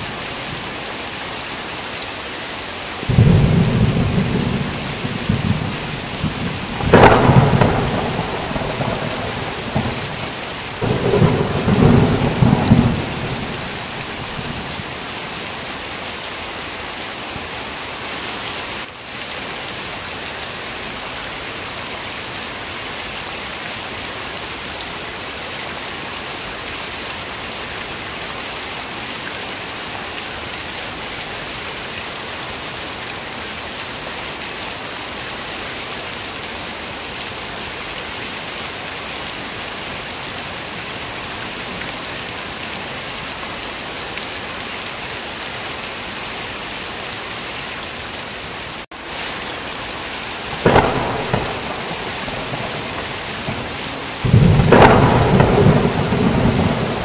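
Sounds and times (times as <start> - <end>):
heavy rain: 0.0 - 57.0
thunder rumbling: 3.1 - 15.0, 50.5 - 57.0.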